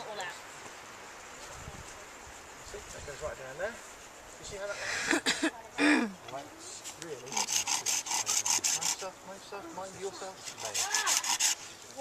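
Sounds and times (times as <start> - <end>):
hand saw cutting wood: 7.2 - 9.1, 10.3 - 11.7.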